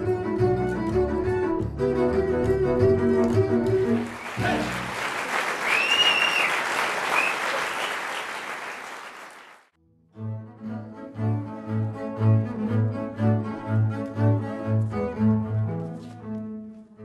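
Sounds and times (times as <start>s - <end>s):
double basses bowing: 0.0s - 5.0s
audience applauding: 3.8s - 9.7s
rising and falling whistle: 5.6s - 8.2s.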